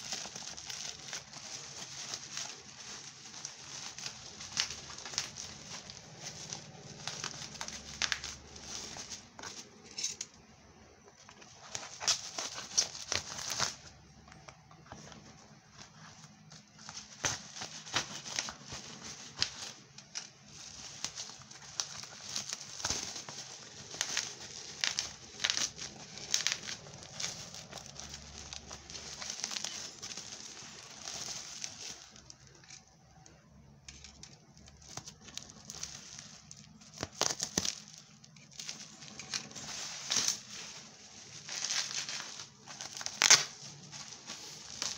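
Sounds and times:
plastic and bubble wrap crinkling: 0:00.0 - 0:44.9.

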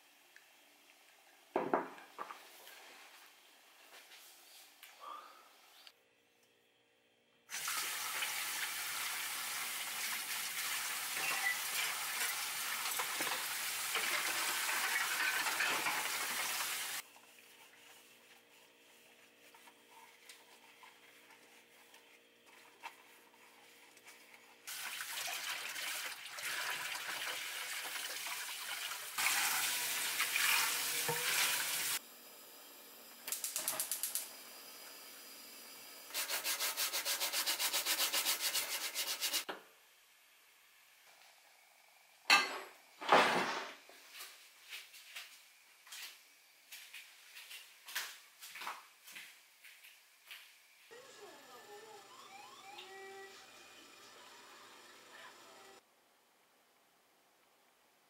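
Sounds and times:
kitchen tap running: 0:07.5 - 0:17.0, 0:23.4 - 0:32.0
dishes being washed by hand: 0:07.5 - 0:32.0.

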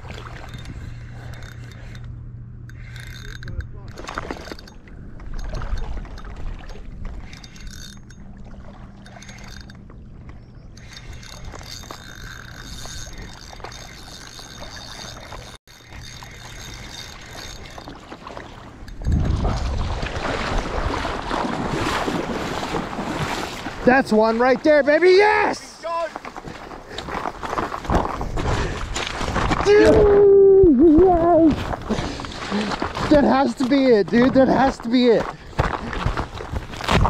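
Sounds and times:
fishing reel gears whirring: 0:00.0 - 0:19.3
wind: 0:00.0 - 0:37.0.

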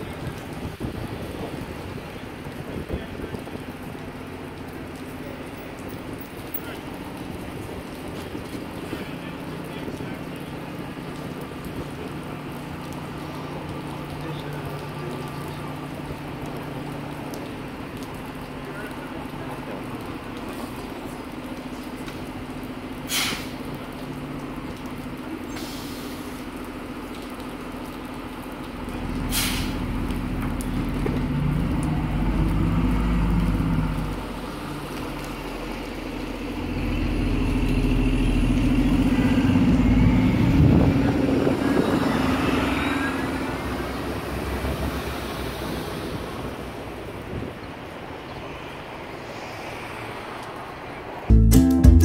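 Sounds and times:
bus engine: 0:00.0 - 0:52.0
air brakes hissing: 0:23.1 - 0:23.6, 0:29.3 - 0:29.8.

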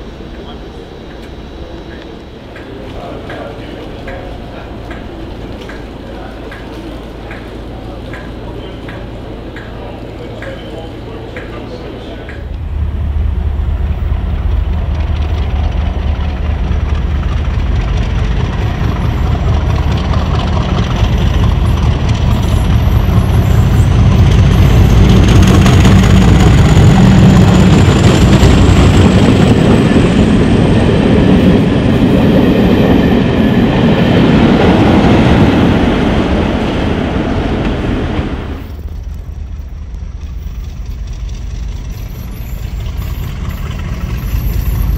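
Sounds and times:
faint high whine: 0:00.0 - 0:04.8
diesel locomotive engine: 0:00.0 - 0:44.9.

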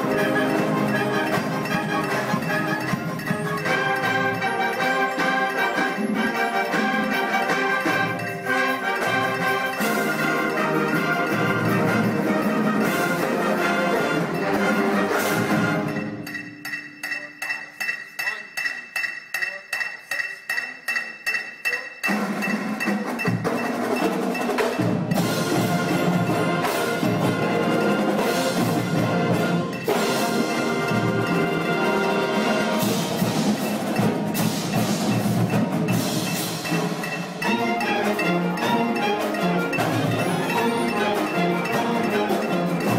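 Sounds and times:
marching band playing: 0:00.0 - 0:18.0, 0:21.6 - 0:42.9
light percussion strokes: 0:00.0 - 0:42.9
held high ringing tones: 0:15.7 - 0:26.0.

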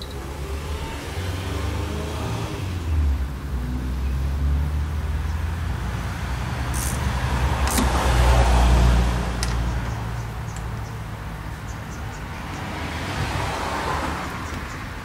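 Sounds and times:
ratchet wrench clicks: 0:06.7 - 0:08.0.

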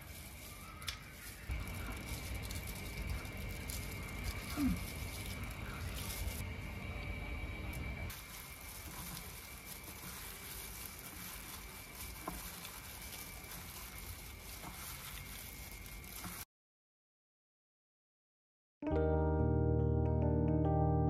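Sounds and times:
gloved hand tossing salad: 0:00.0 - 0:06.4, 0:08.1 - 0:16.4.

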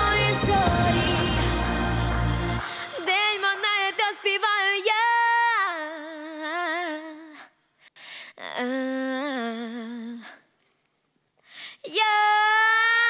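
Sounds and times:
girl singing: 0:00.0 - 0:01.6, 0:02.6 - 0:07.6, 0:08.4 - 0:10.5, 0:11.8 - 0:13.0.

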